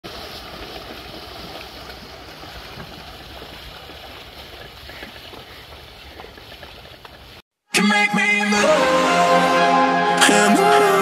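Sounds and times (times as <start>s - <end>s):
river water flowing: 0.0s - 7.4s
small water splashes: 0.0s - 7.4s.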